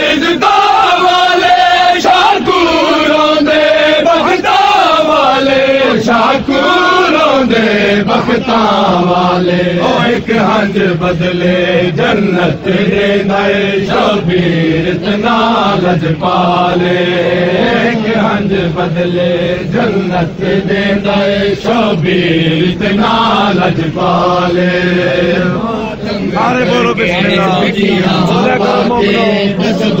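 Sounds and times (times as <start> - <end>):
men chanting a lament: 0.0 - 30.0.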